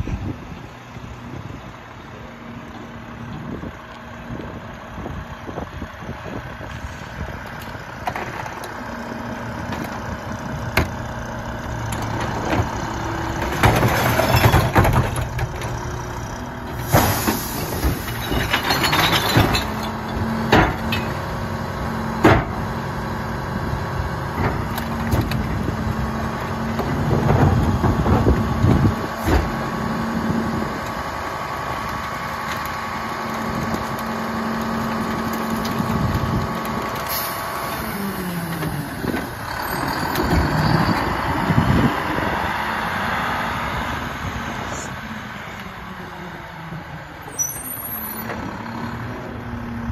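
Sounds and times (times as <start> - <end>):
garbage truck engine running: 0.0 - 49.9
items clattering into hopper: 16.8 - 20.0.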